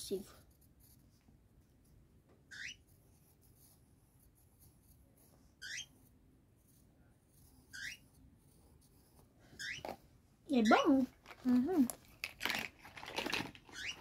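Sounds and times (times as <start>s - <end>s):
pencil scratching on paper: 0.0s - 10.0s
bird chirping: 2.5s - 2.9s, 5.6s - 6.0s, 7.7s - 8.1s, 9.6s - 10.0s, 13.7s - 14.0s.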